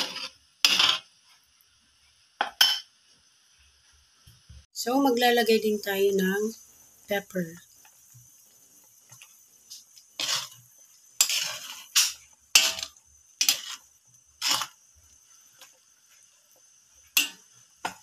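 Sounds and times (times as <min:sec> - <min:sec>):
ladle scraping and knocking wok: 0:00.0 - 0:01.2, 0:09.1 - 0:18.0.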